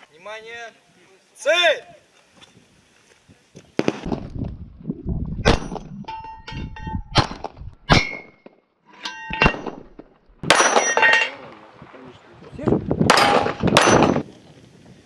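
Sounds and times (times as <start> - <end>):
steel targets clanging: 5.5 - 11.5, 13.1 - 14.2
handgun shots: 13.1 - 14.2.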